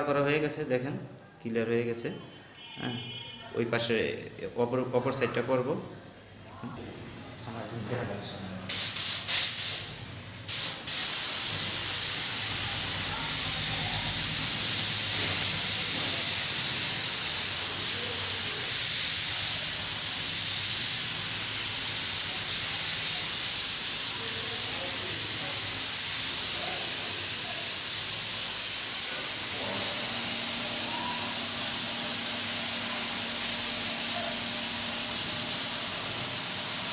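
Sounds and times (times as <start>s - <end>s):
spray gun hissing: 8.7s - 36.9s.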